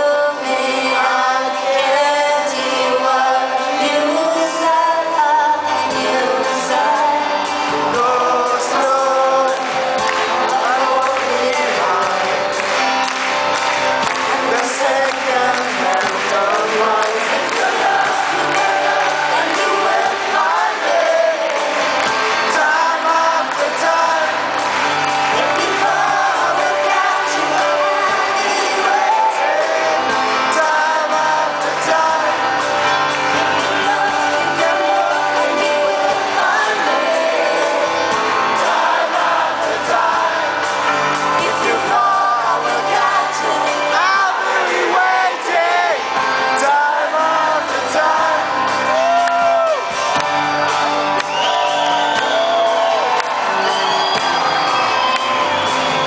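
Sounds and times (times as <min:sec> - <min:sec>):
live band playing pop song: 0:00.0 - 0:56.0
person singing: 0:00.0 - 0:56.0
audience shouting and whooping: 0:41.6 - 0:56.0.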